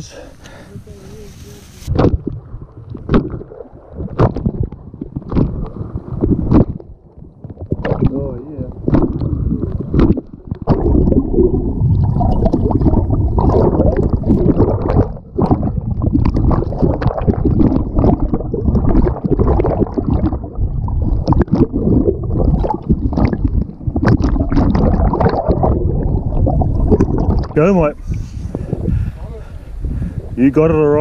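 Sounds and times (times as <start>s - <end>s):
muffled underwater sloshing: 0.0s - 31.0s.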